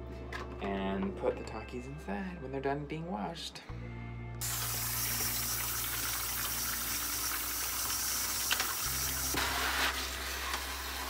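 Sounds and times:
tap water running into sink: 4.4s - 9.6s.

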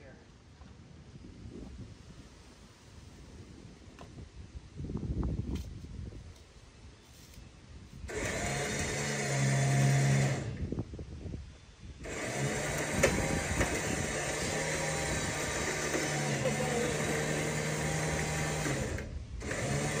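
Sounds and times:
winch motor humming: 8.1s - 10.6s, 12.0s - 20.0s.

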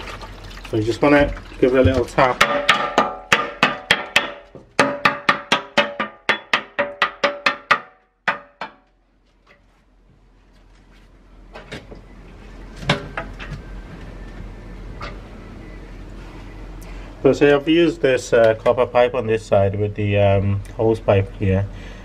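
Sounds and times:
water rushing from hose into bucket: 0.0s - 2.4s
metallic knocks on radiator: 1.9s - 8.8s.

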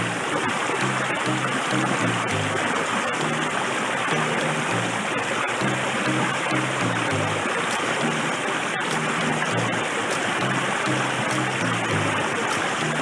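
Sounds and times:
background music low notes: 0.0s - 13.0s
stream splashing over rocks: 0.0s - 13.0s.

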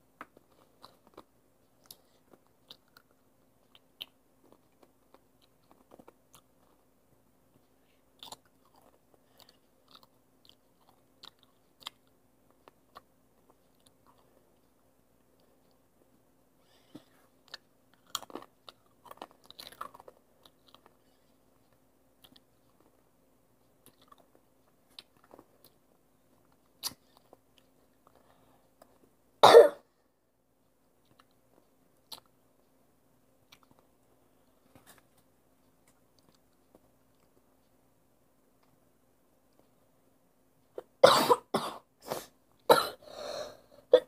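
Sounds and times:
person chewing crunchy chips: 0.4s - 6.8s, 8.2s - 14.3s, 17.4s - 21.0s, 23.8s - 25.8s
person coughing: 29.4s - 29.8s, 41.0s - 44.0s.

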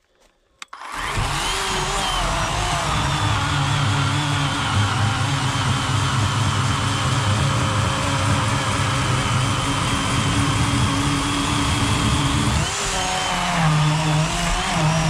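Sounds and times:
electric chainsaw cutting log: 0.7s - 15.0s.

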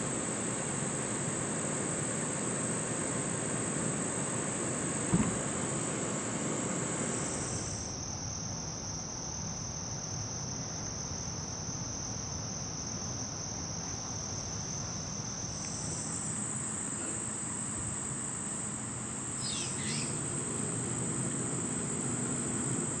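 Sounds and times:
insects trilling: 0.0s - 11.8s, 12.5s - 23.0s
descending chirp: 19.3s - 20.4s.

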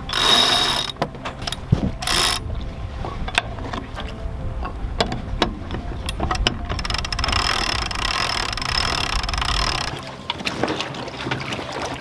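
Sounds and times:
winch ratchet clicking: 0.0s - 2.4s, 5.0s - 10.0s.

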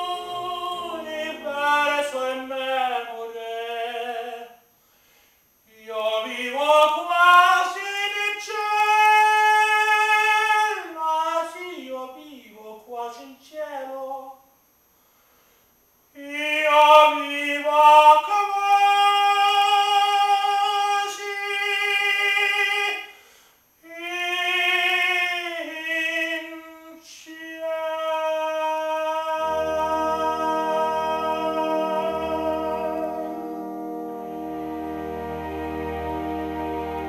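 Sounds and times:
karaoke backing chord: 0.0s - 3.1s, 29.4s - 37.0s
operatic tenor singing: 0.0s - 4.6s, 5.7s - 14.3s, 16.2s - 23.0s, 23.8s - 37.0s.

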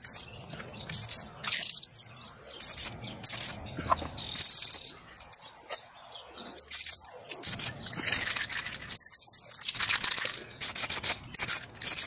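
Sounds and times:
spray can hissing: 0.9s - 1.7s, 2.6s - 3.6s, 6.7s - 8.4s, 9.6s - 12.0s
spray can rattling: 0.9s - 1.9s, 2.6s - 3.6s, 4.4s - 5.3s, 6.6s - 12.0s.

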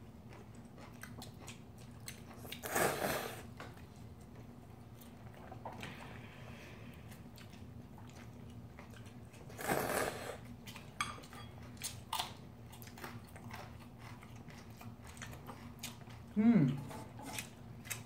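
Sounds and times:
steady low hum: 0.0s - 18.0s
noodles slurped and chewed: 0.2s - 11.0s, 11.6s - 18.0s.

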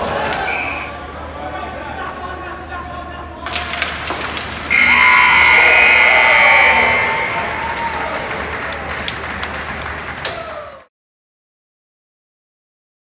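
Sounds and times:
loud horn sounding in arena: 4.7s - 9.3s
scattered clapping: 6.8s - 10.9s.

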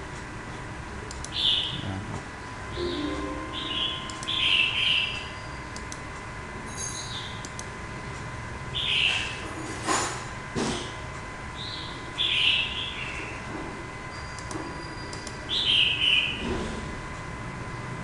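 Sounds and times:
faint high whine: 2.7s - 4.8s
bird chirps: 2.8s - 5.5s.

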